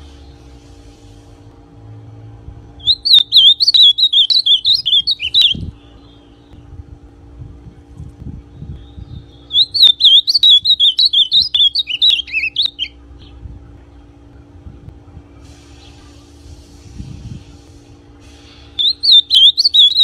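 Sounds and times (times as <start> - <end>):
bird singing warbling phrase: 2.8 - 6.5, 8.6 - 13.4, 18.8 - 20.0.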